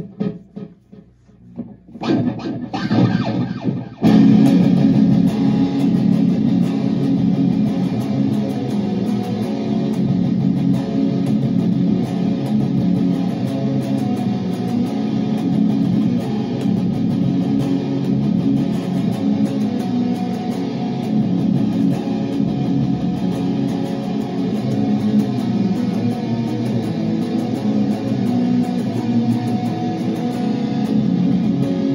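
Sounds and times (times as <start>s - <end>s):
electric guitar strumming chords: 0.0s - 31.9s.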